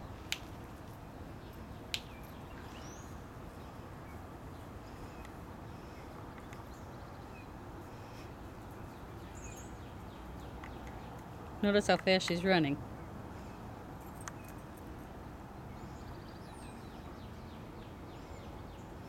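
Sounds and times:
low background noise: 0.0 - 19.0.

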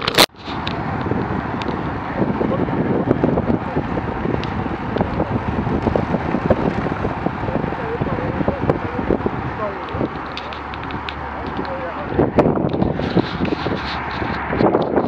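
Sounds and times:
wind buffeting microphone: 0.0 - 15.0
small rattles and clicks: 9.8 - 11.9.

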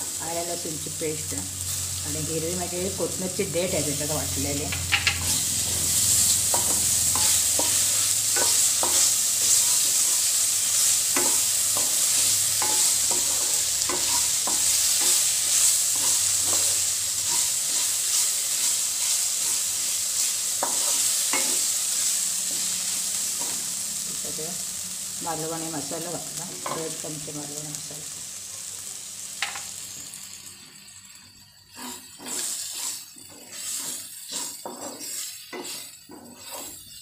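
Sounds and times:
food sizzling in hot oil: 0.0 - 37.0
wooden spatula scraping a pan: 31.7 - 37.0.

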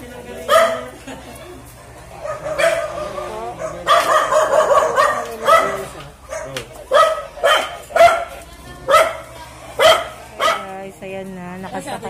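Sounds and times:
dog barking loudly: 0.5 - 1.0, 2.2 - 10.8.

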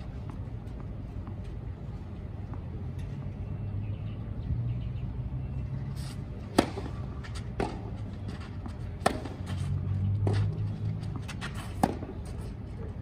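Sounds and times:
tennis ball struck by racquets: 6.4 - 12.4.

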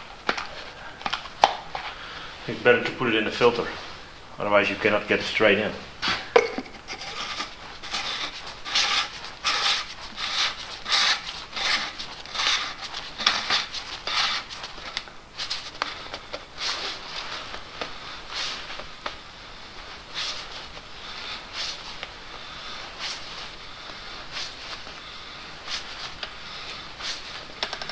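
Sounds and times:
plastic cap rubbing swishes: 6.6 - 19.2, 19.9 - 20.8, 21.4 - 22.2, 22.9 - 25.0, 25.6 - 27.9.

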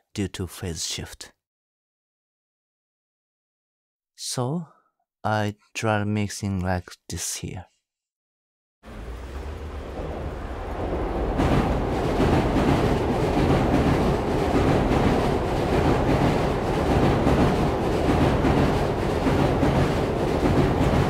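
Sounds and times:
train wheels rumbling on rails: 8.9 - 21.0.

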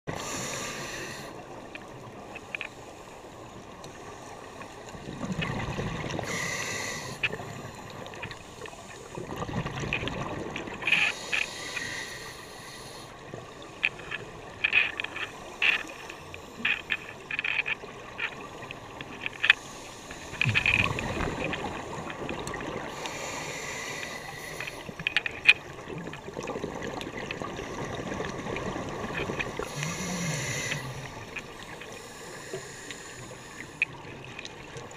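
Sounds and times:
underwater bubbles rumbling: 4.9 - 6.4, 9.2 - 10.8, 20.3 - 23.1
sharp clicks and crackles: 13.7 - 23.2, 24.0 - 26.4.

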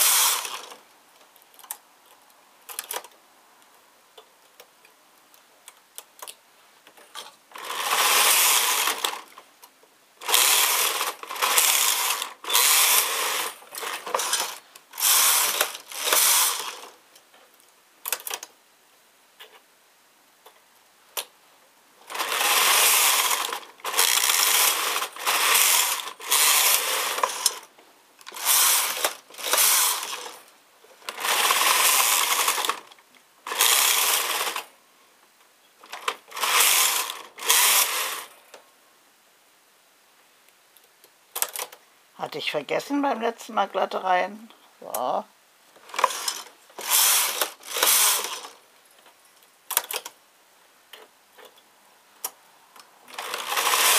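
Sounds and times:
knitting machine carriage sliding: 0.0 - 0.8, 7.0 - 9.4, 10.2 - 17.0, 22.0 - 34.7, 35.8 - 38.4, 45.8 - 48.6, 53.1 - 53.9.

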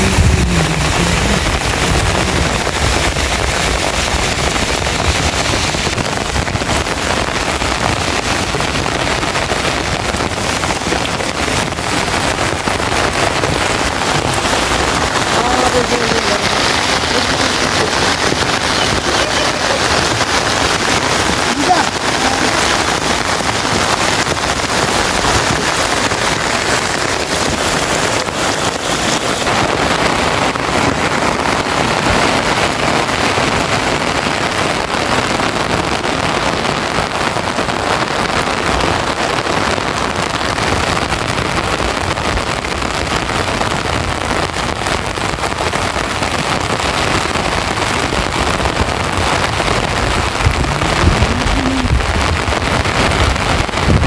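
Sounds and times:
low rumble: 0.0 - 5.3, 50.0 - 54.0
heavy rain pouring: 0.0 - 54.0.

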